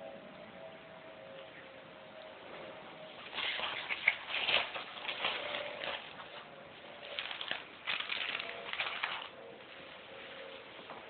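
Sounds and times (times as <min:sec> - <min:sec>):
faint steady hum: 0:00.0 - 0:11.0
cardboard and paper rustling: 0:03.2 - 0:11.0.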